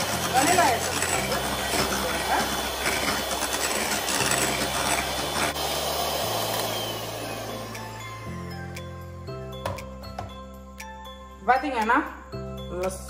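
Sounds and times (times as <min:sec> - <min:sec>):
electric hand mixer whipping batter: 0:00.0 - 0:09.0.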